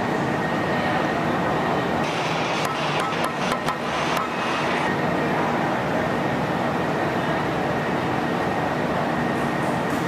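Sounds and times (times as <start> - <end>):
workshop rumble and hiss: 0.0 - 10.0.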